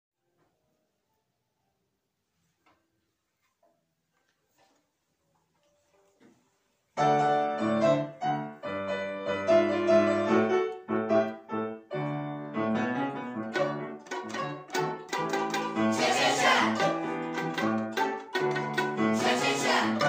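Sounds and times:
piano playing rhythmic chords: 7.0 - 20.0.

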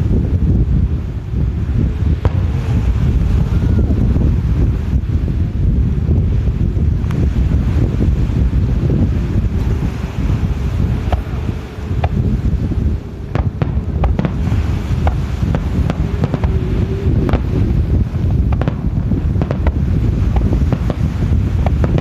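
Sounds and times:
low rumble: 0.0 - 22.0
firework shells bursting: 13.2 - 22.0.

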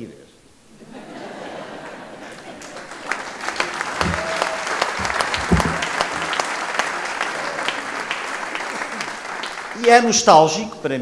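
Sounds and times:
audience applause: 1.3 - 10.6.

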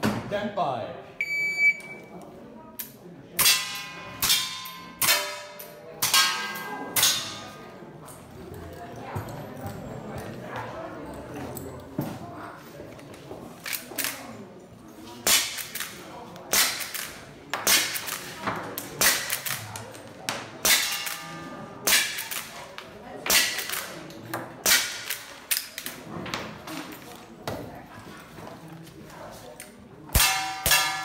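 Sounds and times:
steel plates clanging: 30.2 - 31.0.

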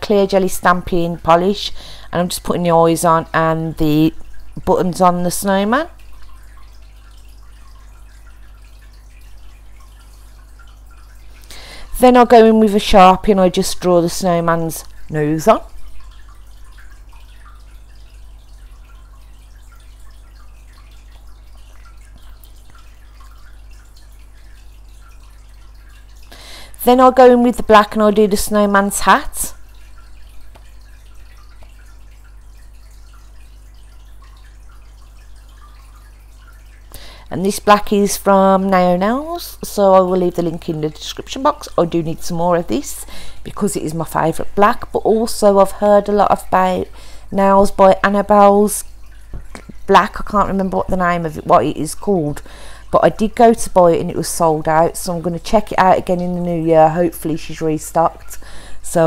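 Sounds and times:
faint small ticks: 17.2 - 25.3.

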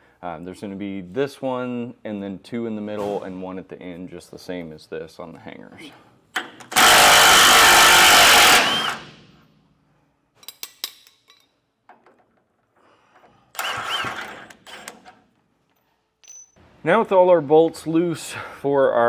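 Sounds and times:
impact wrench hammering bolts: 6.3 - 9.4, 10.4 - 12.4, 13.6 - 15.2
metal clinks: 15.8 - 16.6.

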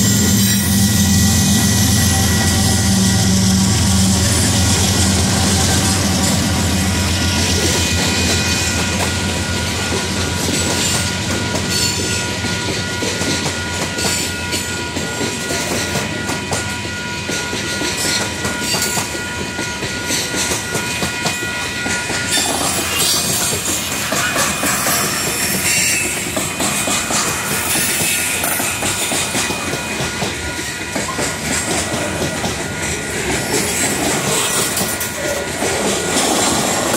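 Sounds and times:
locomotive horn: 0.0 - 7.3
train wheels clacking on rails: 0.0 - 36.9.

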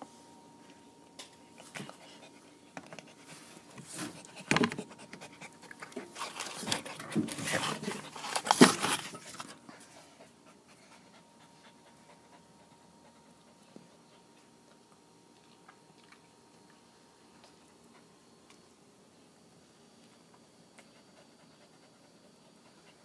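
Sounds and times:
puppy panting: 1.6 - 8.4, 9.6 - 14.6.

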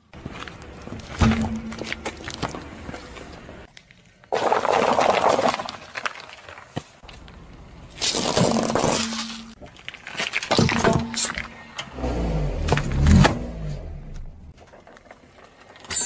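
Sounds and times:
tyre crushing small objects: 0.2 - 11.4
loud crunch: 11.9 - 15.5.

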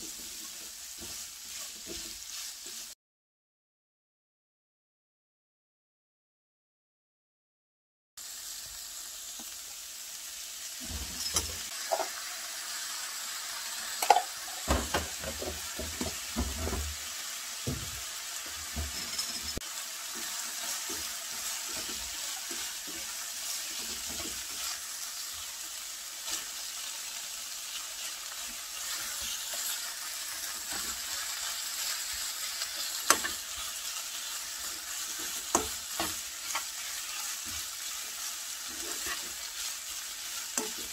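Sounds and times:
food sizzling in a frying pan: 0.0 - 3.0, 8.2 - 40.9
utensils knocking against pan: 14.0 - 16.9, 35.2 - 36.7.

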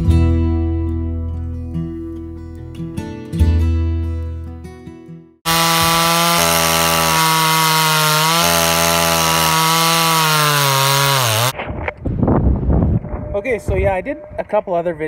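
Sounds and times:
chainsaw cutting a log: 5.5 - 11.5.

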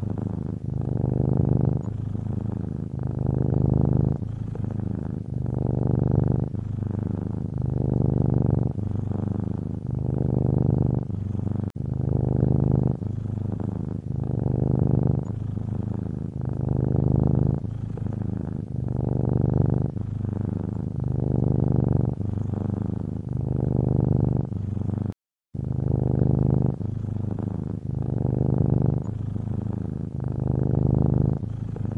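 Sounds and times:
cat purring: 0.0 - 31.9.

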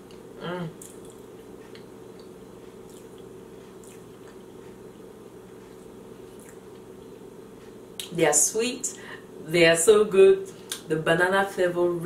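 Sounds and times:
person chewing soft cake: 0.0 - 8.1
low room hum: 0.0 - 12.0.

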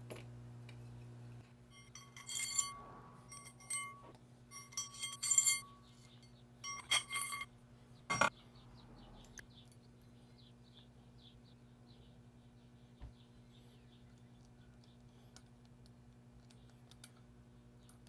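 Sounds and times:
steel parts clinking: 1.7 - 7.5, 8.1 - 8.3.

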